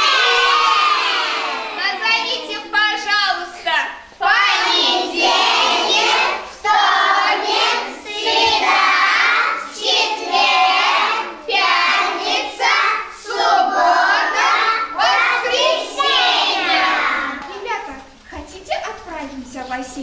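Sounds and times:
young children singing in unison: 0.0 - 1.8, 4.1 - 17.5.

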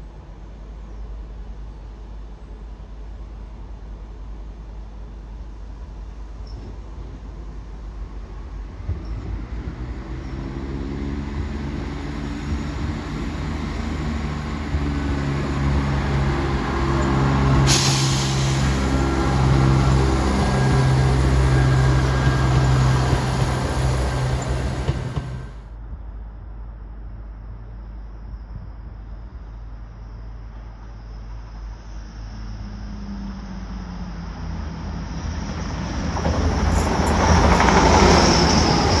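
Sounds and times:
diesel train passing: 0.0 - 28.2, 29.0 - 39.0
air hiss: 17.5 - 19.9.

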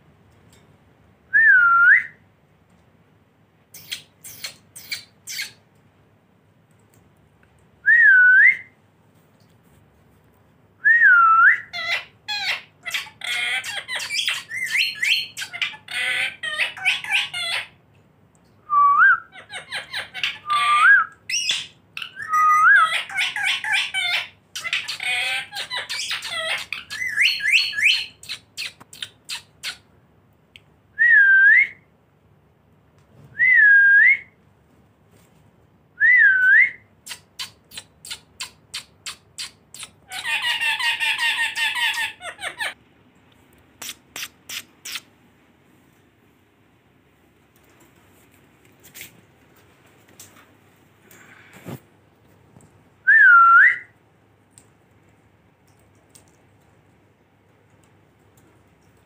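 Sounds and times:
parakeets harsh chattering: 3.8 - 5.6, 11.8 - 17.8, 19.3 - 29.9, 37.1 - 42.8, 43.8 - 45.1
parakeets shrill whistled calls: 19.5 - 28.7.

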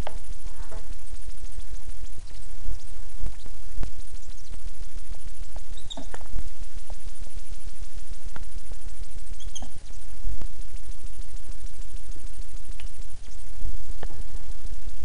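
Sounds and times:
steady low rumble: 0.0 - 15.0
high-pitched animal squeaks: 5.7 - 6.2, 9.4 - 9.8.

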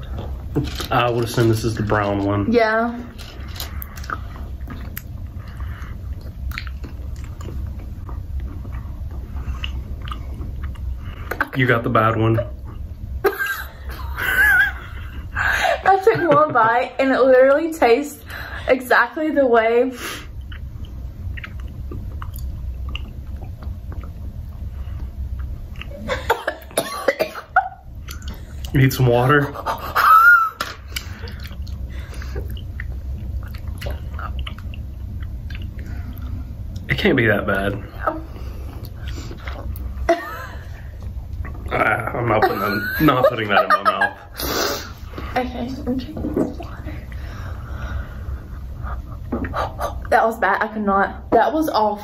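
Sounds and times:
low steady hum: 0.0 - 52.0
people chewing: 3.1 - 11.5, 20.2 - 26.8, 28.0 - 36.9, 37.8 - 45.4, 46.6 - 50.1
wet mouth clicks chewing: 3.8 - 7.8, 20.4 - 24.2, 32.4 - 36.9.

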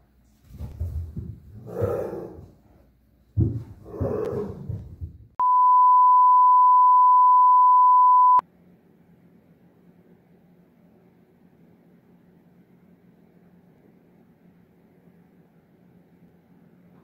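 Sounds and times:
high-pitched test-tone beep: 5.4 - 8.4.

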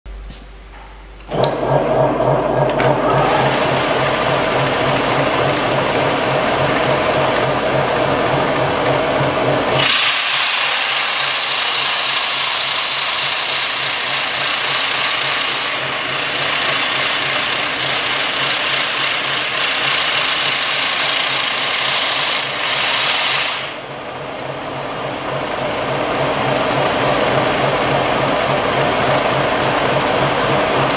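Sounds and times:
belt sanding machine humming: 1.3 - 30.9
wood grinding on sanding belt: 10.8 - 23.8.

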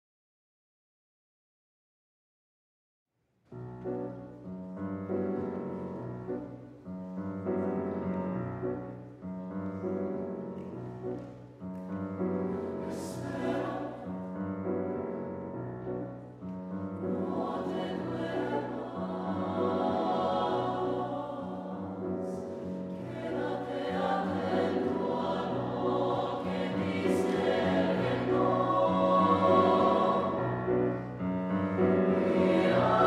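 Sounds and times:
grand piano chords: 3.5 - 33.0
choir singing: 12.4 - 14.8, 16.9 - 33.0.

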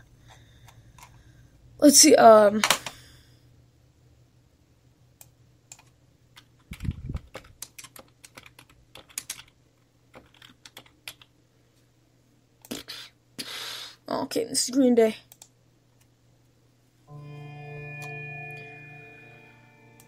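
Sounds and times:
computer keyboard keystrokes: 5.7 - 11.3.

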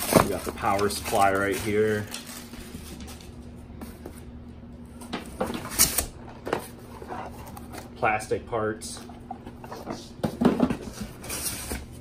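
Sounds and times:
cardboard boxes scuffing and knocking: 0.0 - 1.3.

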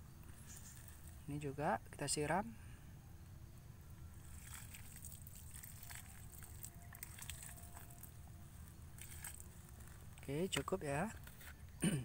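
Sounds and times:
water poured onto soil: 4.2 - 10.7.

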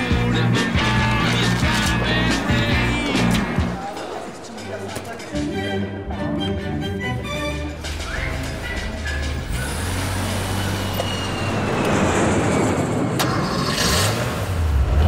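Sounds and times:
jet airliner flying overhead: 9.6 - 13.7.

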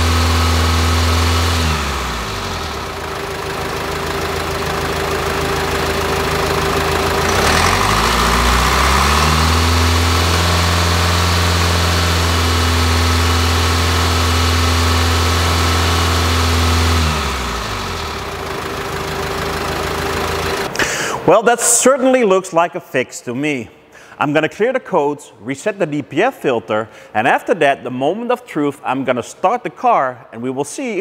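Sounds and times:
diesel engine idling and revving: 0.0 - 21.1.

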